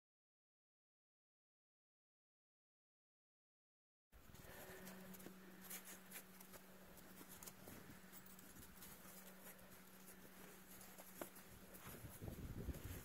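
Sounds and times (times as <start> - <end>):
faint hum: 4.2 - 13.0.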